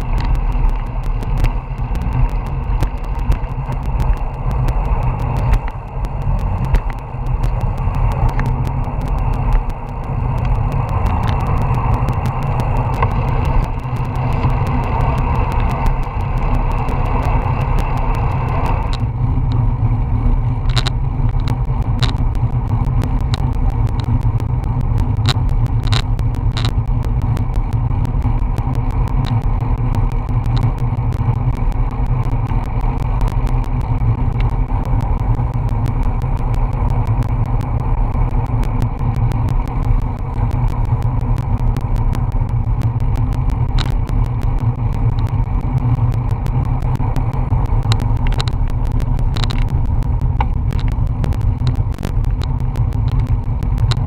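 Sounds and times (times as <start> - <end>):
wind on microphone: 0.0 - 31.3
road and tyre rumble: 0.0 - 54.0
sharp clicks and rattles: 0.0 - 54.0.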